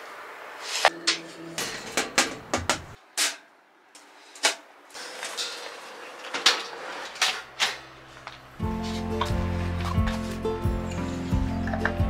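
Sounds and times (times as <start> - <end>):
metal panels clanking and clicking: 0.9 - 3.5, 4.4 - 8.3.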